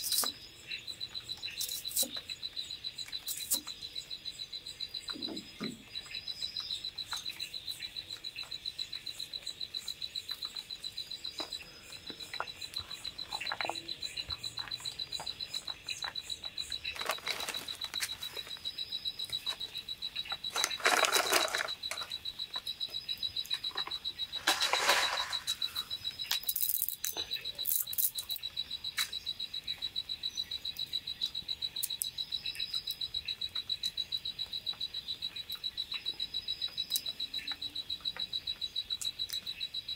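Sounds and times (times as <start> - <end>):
scattered clicks: 19.2 - 29.2.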